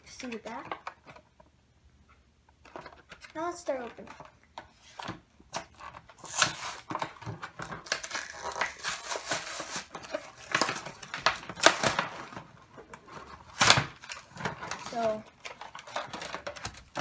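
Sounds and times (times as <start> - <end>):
plastic packaging crinkling and tearing: 5.5 - 17.0.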